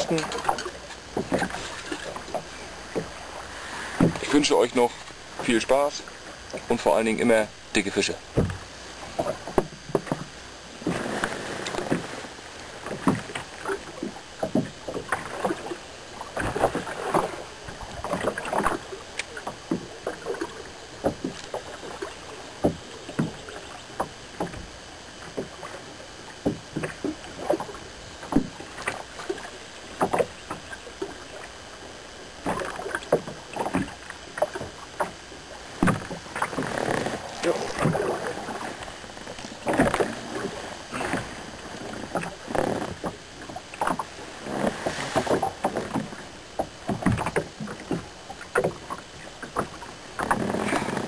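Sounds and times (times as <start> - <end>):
small waves slapping boat hull: 0.0 - 51.0
steady low water wash: 0.0 - 51.0.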